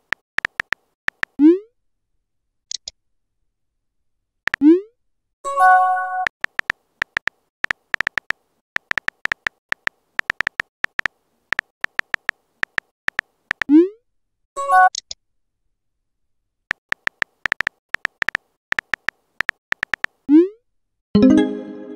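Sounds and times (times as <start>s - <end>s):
phone keyboard typing clicks: 0.0s - 1.4s, 6.3s - 13.7s, 16.7s - 20.2s
short synthetic chime: 21.2s - 21.9s.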